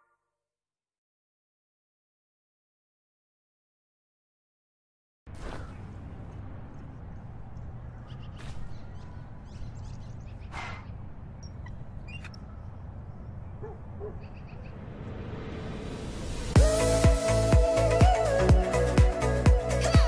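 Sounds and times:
bird chirps and calls: 7.9 - 14.8
low rumble: 13.1 - 17.5.

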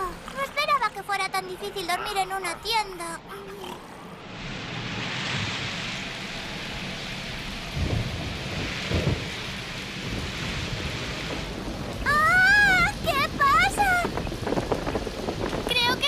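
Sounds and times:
heavy rain: 3.9 - 16.0
thunder rumbles: 4.1 - 16.0.

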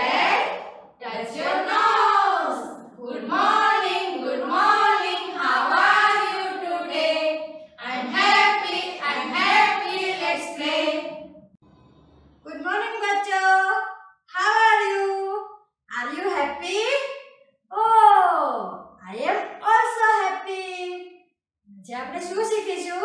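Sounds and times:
women singing in unison: 0.0 - 11.3.

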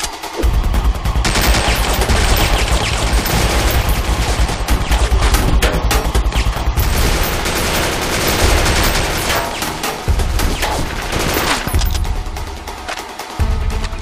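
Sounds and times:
background music: 0.0 - 14.0
rapid automatic gunfire: 1.2 - 12.0.

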